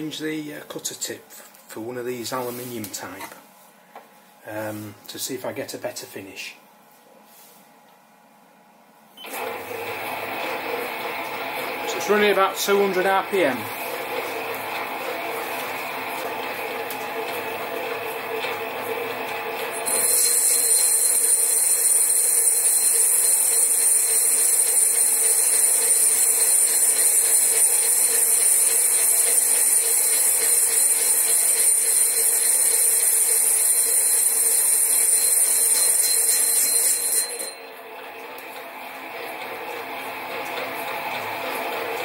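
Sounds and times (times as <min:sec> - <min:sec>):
lathe cutting metal with whine: 0:09.3 - 0:16.9.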